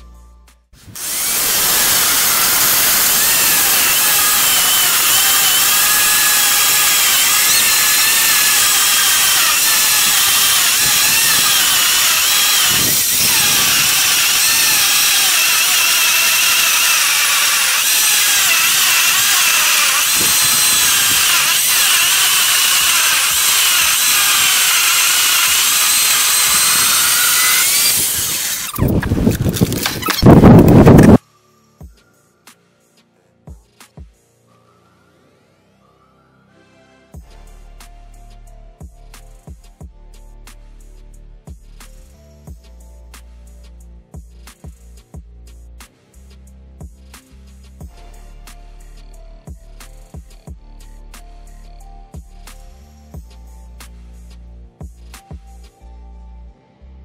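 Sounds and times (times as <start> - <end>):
electric chain saw cutting log: 0.8 - 31.2.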